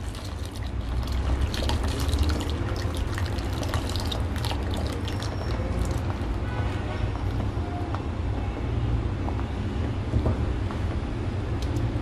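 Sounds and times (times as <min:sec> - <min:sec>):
milk swishing: 0:00.0 - 0:06.4
paste trickling into milk: 0:00.0 - 0:06.5.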